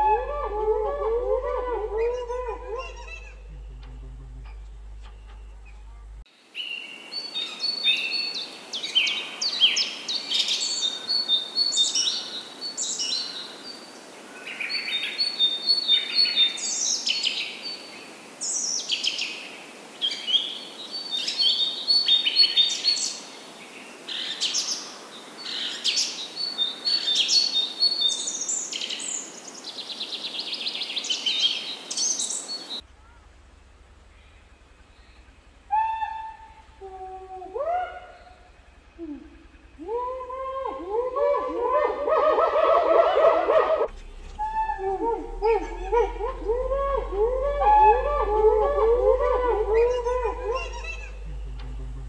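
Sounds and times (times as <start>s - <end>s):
low hum: 0.0s - 6.3s, 32.8s - 42.1s, 43.8s - 52.0s
steady background hiss: 0.0s - 52.0s.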